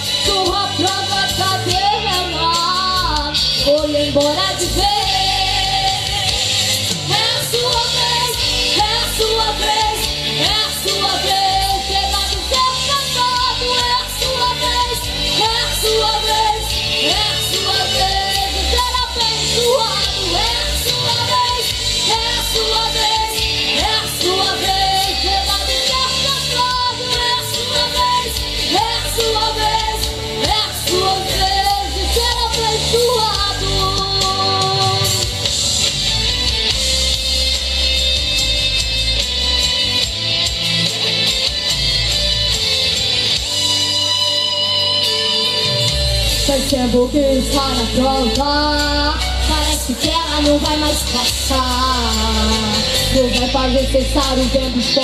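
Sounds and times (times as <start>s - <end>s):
live band playing gospel: 0.0s - 55.0s
girl singing into a microphone: 0.2s - 6.4s, 7.2s - 35.2s, 46.6s - 55.0s.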